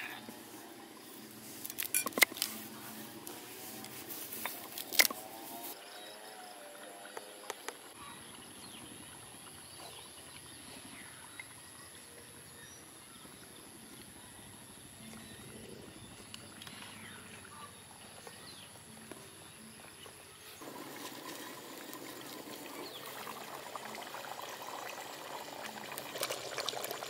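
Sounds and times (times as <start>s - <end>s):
thin high-pitched whine: 0.0s - 4.0s
faint bird chirps: 7.9s - 20.6s.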